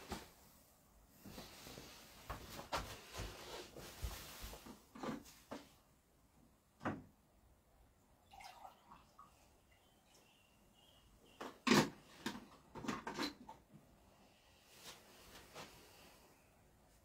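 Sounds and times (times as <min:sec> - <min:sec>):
rustling with soft knocks: 0:00.0 - 0:05.9, 0:14.7 - 0:16.1.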